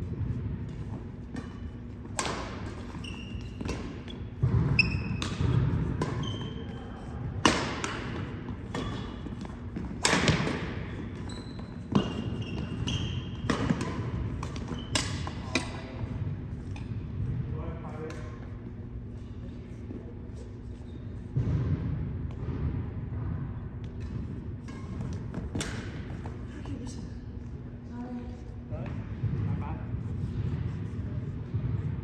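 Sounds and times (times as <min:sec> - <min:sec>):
shoes squeaking on court: 0:00.8 - 0:07.2, 0:08.0 - 0:16.0, 0:19.1 - 0:21.4
racket striking shuttlecock: 0:01.2 - 0:06.4, 0:07.3 - 0:11.2, 0:11.8 - 0:15.9, 0:23.9 - 0:26.4.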